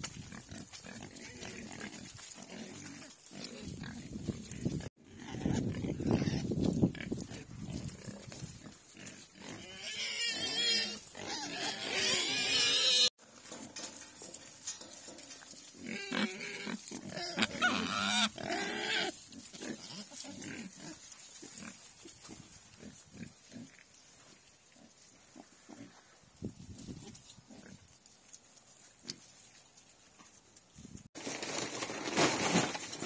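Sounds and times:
pigs snuffling in straw: 0.0 - 32.1
pigs squealing: 5.1 - 6.6, 9.4 - 13.1, 15.8 - 22.4.

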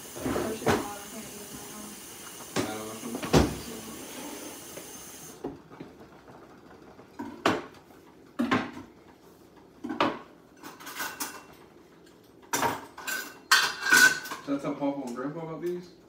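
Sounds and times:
dishes and cutlery clinking: 9.8 - 11.6, 12.4 - 14.6.

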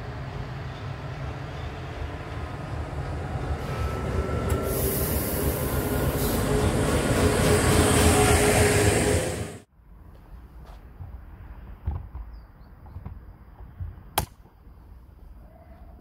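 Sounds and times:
train passing through station: 0.0 - 11.7
hiss: 4.6 - 6.5.

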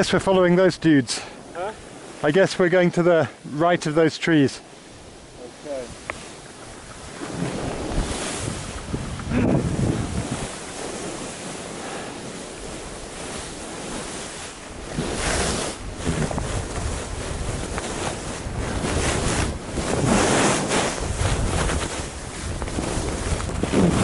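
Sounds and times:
skis hissing and scraping on snow: 0.0 - 24.0
wind rushing over microphone: 4.8 - 24.0.

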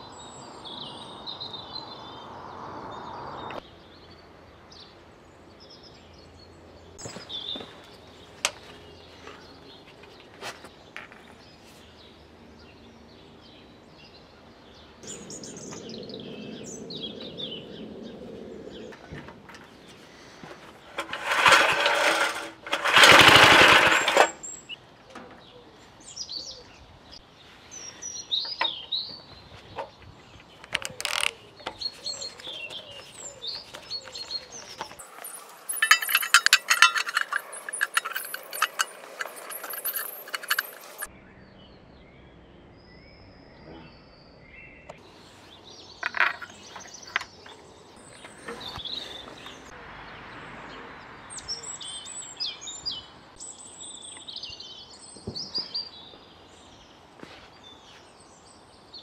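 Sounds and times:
birds chirping: 0.0 - 59.0
small petrol engine running: 20.8 - 24.7, 33.6 - 41.1.

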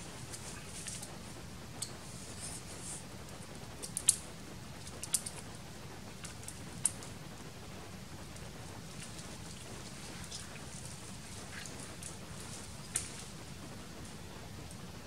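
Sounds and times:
leaves rustling: 0.0 - 15.0
leaf stems snapping: 9.0 - 13.4.

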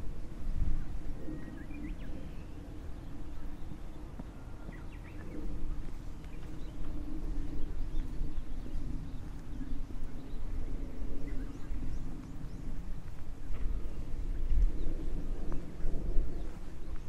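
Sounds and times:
wind buffeting microphone: 0.0 - 17.0
faint bird chirps: 0.5 - 13.0
footsteps on trail: 12.2 - 17.0.

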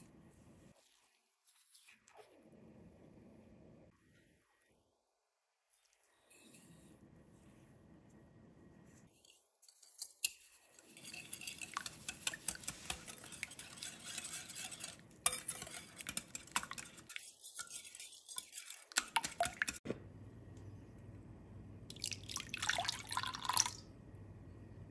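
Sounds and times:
whisk clicking against glass bowl: 18.6 - 19.8.

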